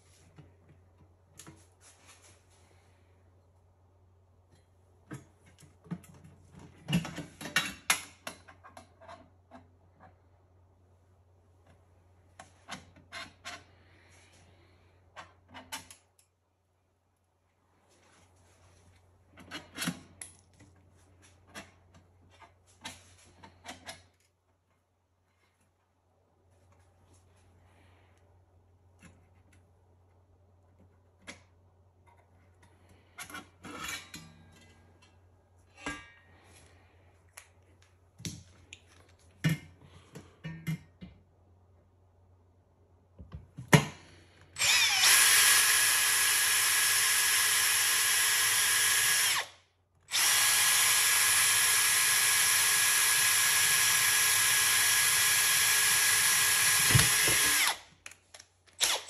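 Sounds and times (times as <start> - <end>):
cordless drill drilling into metal: 44.6 - 49.5, 50.1 - 57.8, 58.8 - 59.0.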